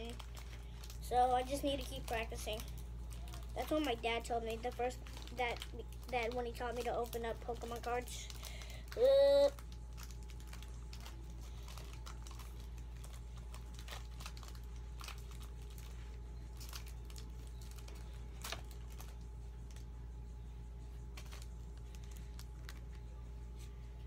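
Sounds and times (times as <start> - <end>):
card pack crinkling: 0.0 - 19.9, 21.0 - 23.7.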